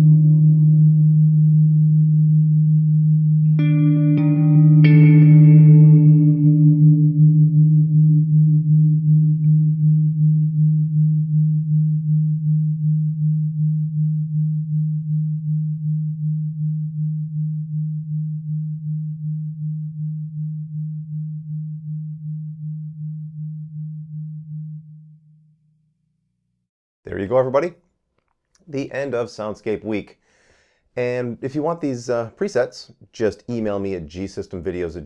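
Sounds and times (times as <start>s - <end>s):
electric guitar note with reverb: 0.0s - 12.1s.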